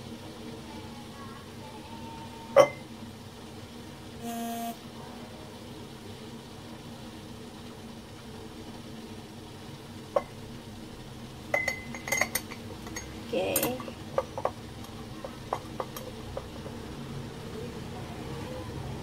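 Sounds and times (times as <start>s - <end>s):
glass ringing: 2.6s - 2.8s, 11.5s - 12.4s.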